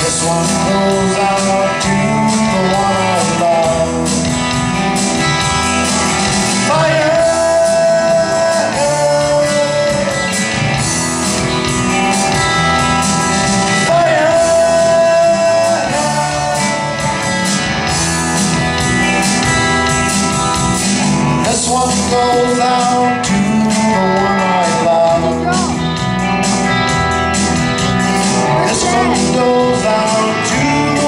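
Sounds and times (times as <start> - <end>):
drums: 0.0 - 31.0
electric guitars: 0.0 - 31.0
person singing long held notes: 28.4 - 31.0.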